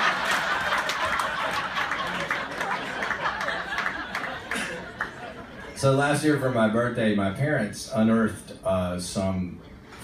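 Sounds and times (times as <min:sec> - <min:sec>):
audience laughing: 0:00.0 - 0:05.8.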